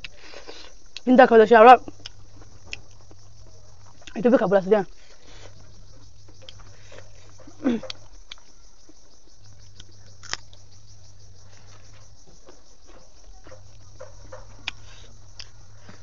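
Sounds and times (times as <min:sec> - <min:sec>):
chewing and lip smacks: 0:01.9 - 0:04.2, 0:09.4 - 0:10.8.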